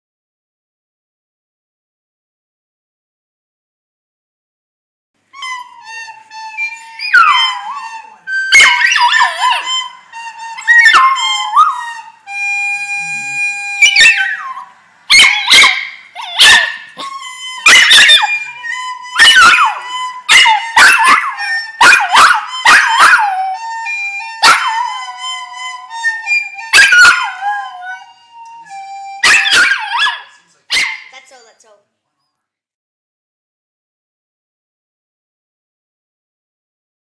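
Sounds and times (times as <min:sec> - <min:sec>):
music with long steady note: 0:05.2 - 0:15.1, 0:17.0 - 0:30.6
puppy howling and yipping: 0:07.0 - 0:09.9, 0:10.6 - 0:12.1, 0:13.0 - 0:23.6, 0:24.3 - 0:25.4, 0:26.0 - 0:28.2, 0:29.2 - 0:31.1.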